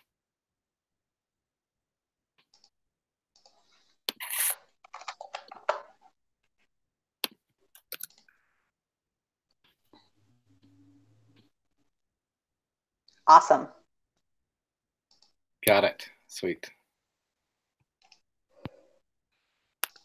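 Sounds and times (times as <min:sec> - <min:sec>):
computer mouse clicks: 0:07.2 - 0:08.3, 0:15.1 - 0:15.4, 0:18.0 - 0:18.8, 0:19.8 - 0:20.0.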